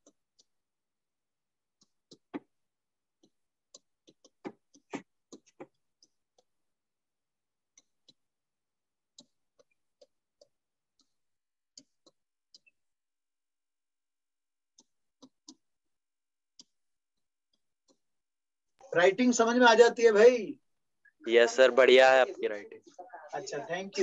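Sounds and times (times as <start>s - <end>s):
pen tapping on touchscreen: 1.8s - 2.6s, 3.2s - 6.7s, 7.7s - 8.3s, 9.1s - 12.8s, 14.7s - 15.8s, 16.5s - 16.8s.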